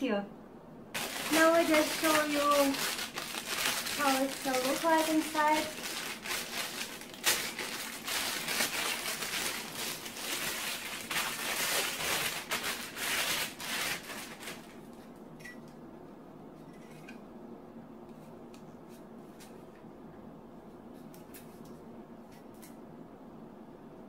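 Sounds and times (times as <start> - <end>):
plastic wrapping rustling: 1.0 - 15.1.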